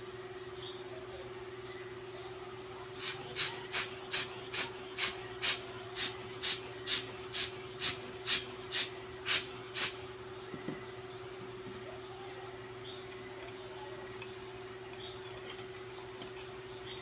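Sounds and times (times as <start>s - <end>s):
hand bulb air blower puffing: 3.0s - 10.2s.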